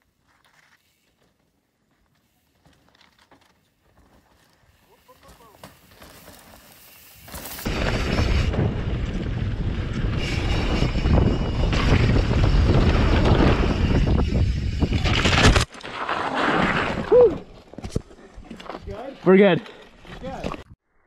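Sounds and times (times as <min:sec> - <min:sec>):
wind rushing on microphone: 0:07.7 - 0:15.6.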